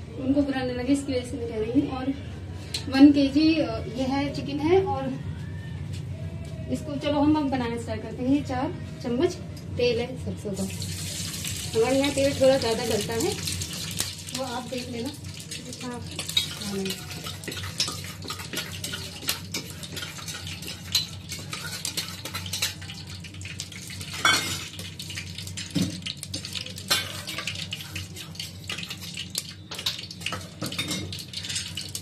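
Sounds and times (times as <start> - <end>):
oil crackling in a pot: 10.6 - 32.0
metal spoon clinking and scraping: 16.2 - 23.2, 26.3 - 32.0.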